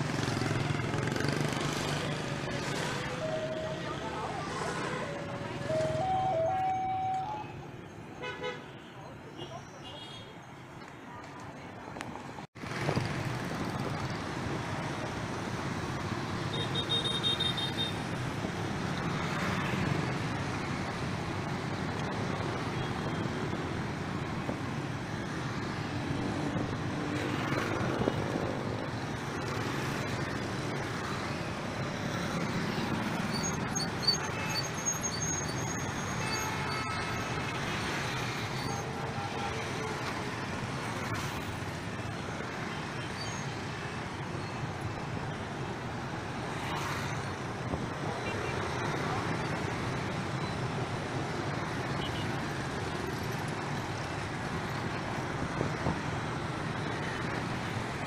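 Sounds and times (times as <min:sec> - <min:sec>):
motor scooters passing: 0:00.0 - 0:07.1
cars passing: 0:00.0 - 0:09.5, 0:39.6 - 0:58.0.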